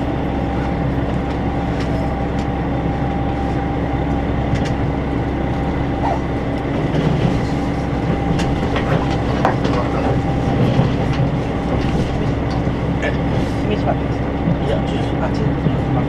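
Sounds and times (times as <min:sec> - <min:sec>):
train wheels rumbling on rail: 0:00.0 - 0:16.0
wheels clicking on track: 0:06.0 - 0:16.0.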